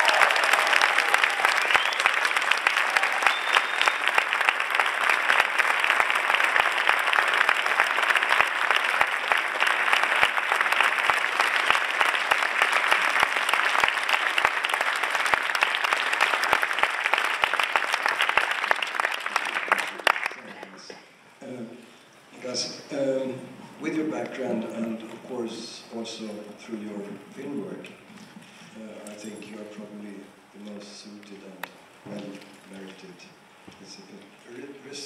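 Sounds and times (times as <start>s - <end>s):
audience applauding: 0.0s - 20.8s.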